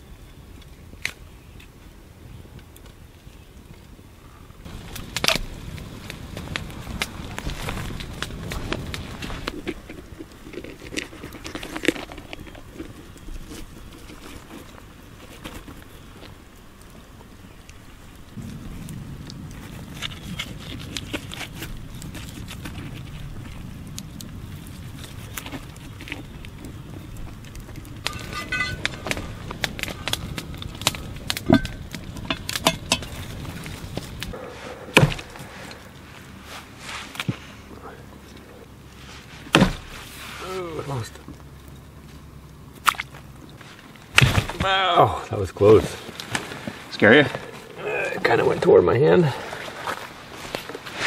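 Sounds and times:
metal pot and lid clinking: 28.1 - 28.9
axe chopping through meat: 35.0 - 35.2.

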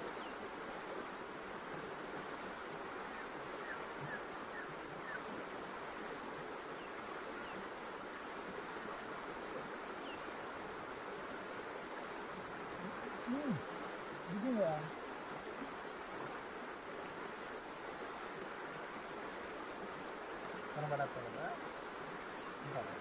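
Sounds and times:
steady rushing outdoor noise: 0.0 - 23.0
faint bird chirps: 2.2 - 5.4, 9.9 - 10.4.

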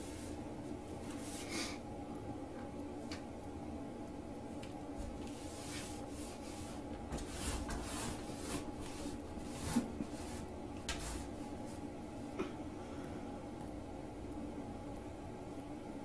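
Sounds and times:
rug scraping across tile floor: 5.0 - 11.9.

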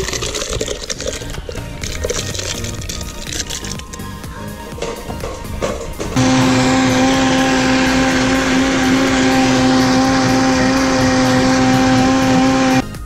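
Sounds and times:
blender motor whining: 6.2 - 12.8.

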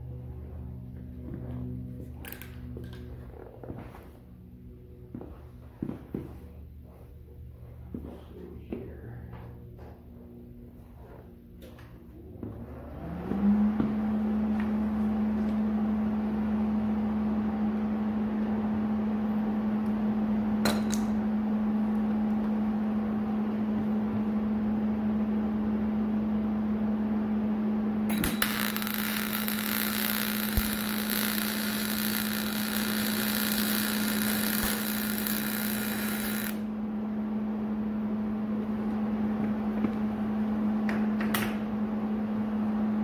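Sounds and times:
machine hum: 0.0 - 43.0
welding arc hissing: 28.1 - 36.6.

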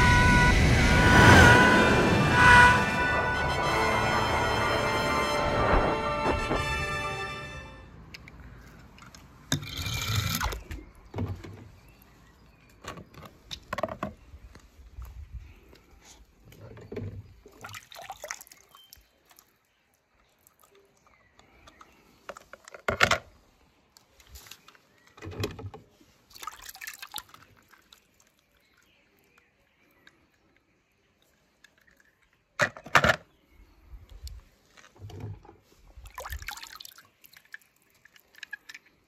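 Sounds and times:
water splashing in a plastic tub: 16.6 - 21.2, 24.0 - 29.3, 35.1 - 39.0.

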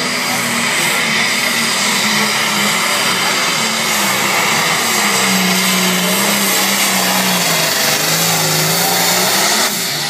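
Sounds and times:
tractor diesel engine running flat out: 0.0 - 10.0.

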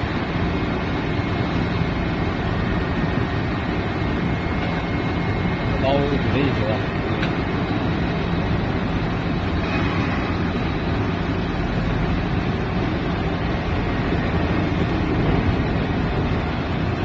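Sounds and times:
constant low hum: 0.0 - 17.0
crane machinery rumbling: 0.0 - 17.0.

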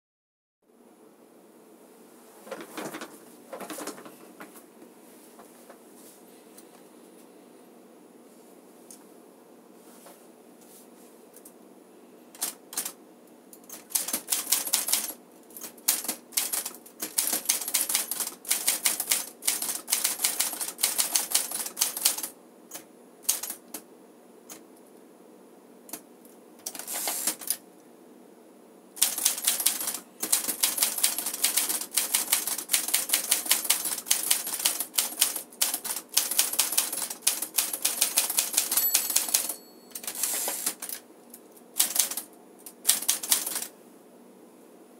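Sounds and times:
typewriter keys striking: 13.6 - 22.3, 29.0 - 41.0, 41.8 - 43.7
typewriter bell ringing: 38.4 - 40.8.

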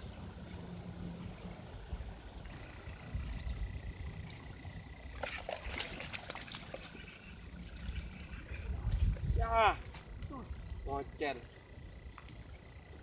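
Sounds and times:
high-pitched insect drone: 0.0 - 13.0
wind rumble on microphone: 1.3 - 6.1, 7.5 - 11.2.

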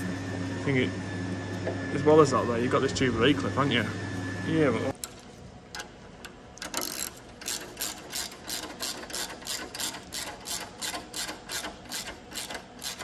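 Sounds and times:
hand ratchet clicking: 6.6 - 13.0.

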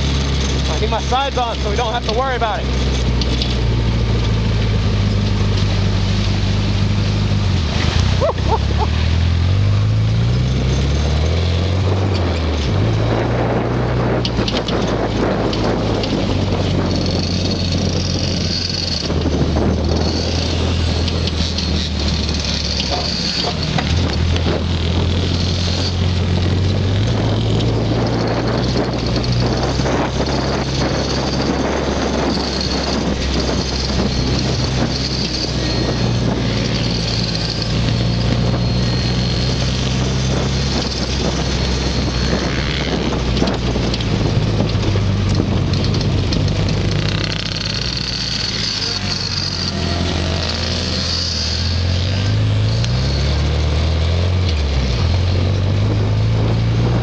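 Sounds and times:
buggy knocking and rattling: 0.0 - 8.8, 10.1 - 53.6
buggy engine running: 0.0 - 57.0
wind noise: 0.0 - 57.0.

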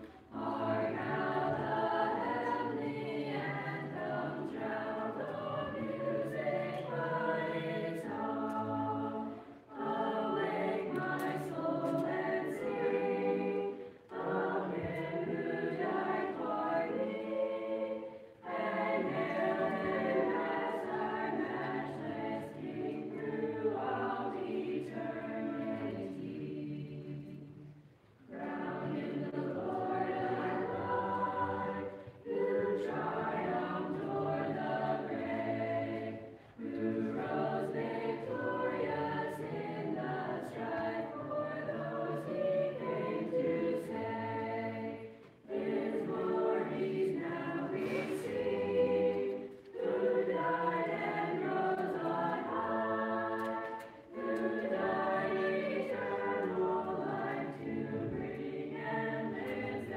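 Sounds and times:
children's choir singing a cappella: 0.0 - 59.9.

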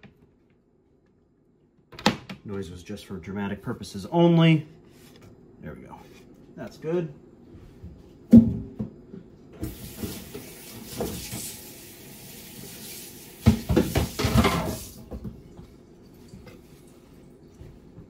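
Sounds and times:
kitchen faucet running: 9.6 - 15.0
clattering in sink: 13.4 - 15.6.

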